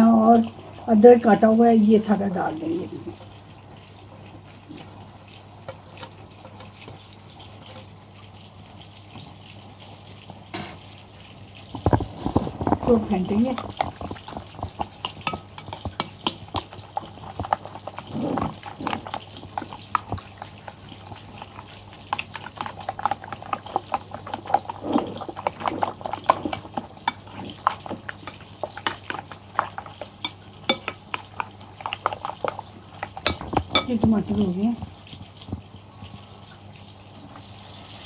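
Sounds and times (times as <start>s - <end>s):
spoon clinking against plate: 15.1s - 16.4s, 30.2s - 31.0s, 33.2s - 34.0s.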